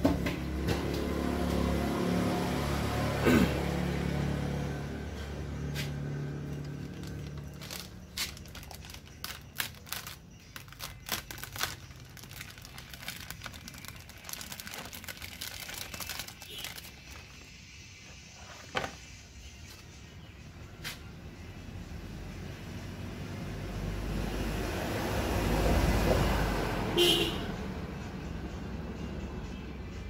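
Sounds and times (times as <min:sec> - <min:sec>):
plastic sheet crinkling: 0:06.6 - 0:17.4.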